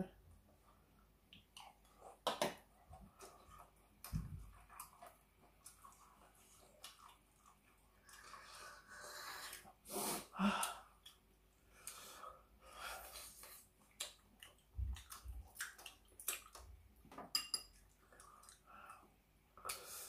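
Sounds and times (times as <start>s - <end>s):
breathing: 8.1s - 9.6s, 11.7s - 13.4s
utensils clinking on a dish: 17.3s - 17.8s.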